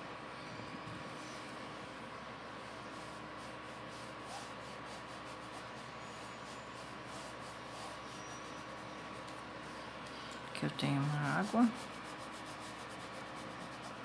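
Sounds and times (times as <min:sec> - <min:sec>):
faint hum: 0:00.0 - 0:14.0
brush scratching on fabric: 0:02.6 - 0:10.0, 0:10.6 - 0:14.0.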